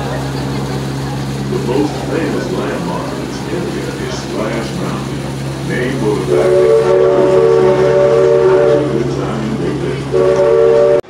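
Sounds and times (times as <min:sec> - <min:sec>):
steady low hum: 0:00.0 - 0:11.0
steam whistle blasts: 0:03.6 - 0:11.0.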